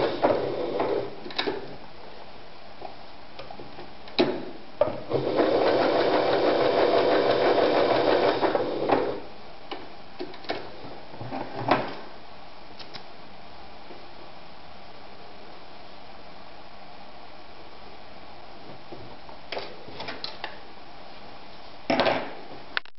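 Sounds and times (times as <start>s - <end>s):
sewing machine stitching: 5.1s - 9.2s.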